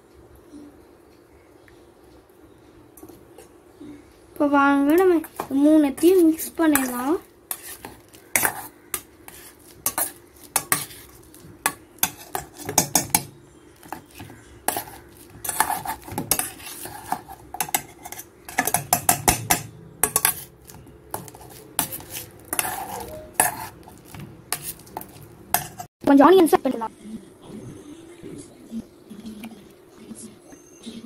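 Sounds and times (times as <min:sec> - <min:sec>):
potato masher scraping metal bowl: 0:05.2 - 0:11.3, 0:12.0 - 0:25.9.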